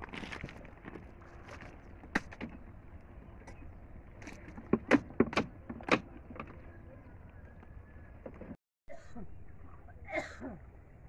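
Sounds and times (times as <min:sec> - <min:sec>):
sharp knocks and clicks: 0:04.5 - 0:06.6.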